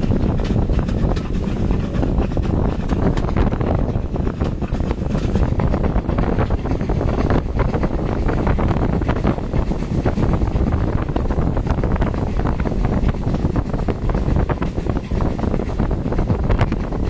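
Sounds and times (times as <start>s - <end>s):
train running on track: 0.0s - 17.0s
wind buffeting microphone: 0.0s - 17.0s.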